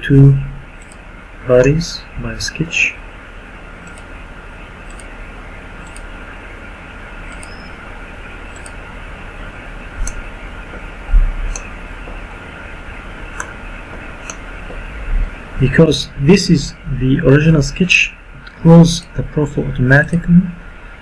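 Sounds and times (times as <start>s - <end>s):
microphone hiss: 0.0s - 21.0s
computer mouse clicking: 0.8s - 1.0s, 3.8s - 4.1s, 4.9s - 5.1s, 5.8s - 6.1s, 7.3s - 7.6s, 8.5s - 8.8s, 11.5s - 12.2s
low thumps: 10.0s - 12.4s.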